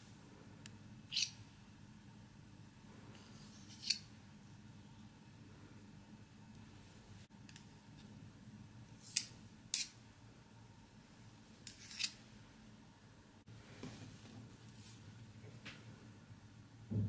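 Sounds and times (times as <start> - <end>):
metal spoons clicking and scraping: 11.6 - 12.2.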